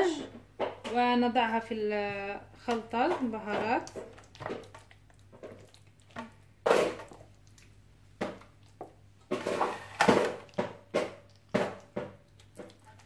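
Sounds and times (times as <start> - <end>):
hand squelching meat in marinade: 3.6 - 13.0.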